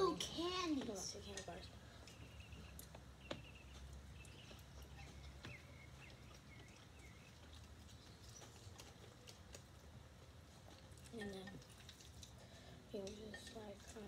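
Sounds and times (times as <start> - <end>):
chewing mouth noises: 3.6 - 13.2.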